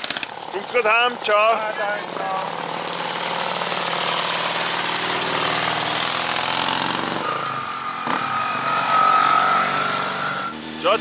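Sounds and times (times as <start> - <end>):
motorcycle engine chattering: 0.0 - 10.9
steady high tone: 4.6 - 10.6.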